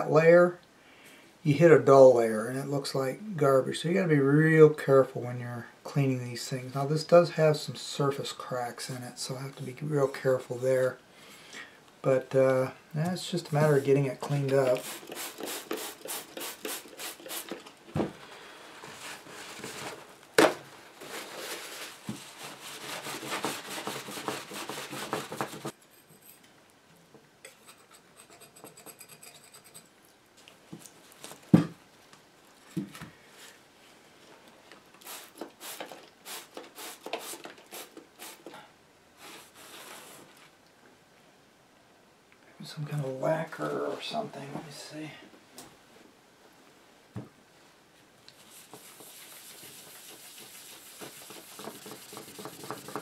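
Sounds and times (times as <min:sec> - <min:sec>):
scraping and scratching strokes: 0:21.0 - 0:26.5, 0:27.4 - 0:30.0, 0:48.3 - 0:53.0
rubbing and wiping panel: 0:21.1 - 0:25.8, 0:48.4 - 0:53.0.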